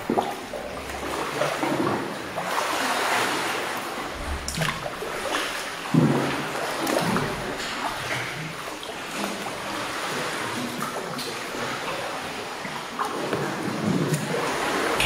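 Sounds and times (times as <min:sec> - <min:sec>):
continuous rush of water: 0:00.0 - 0:15.0
water splashing against canoe: 0:00.0 - 0:15.0.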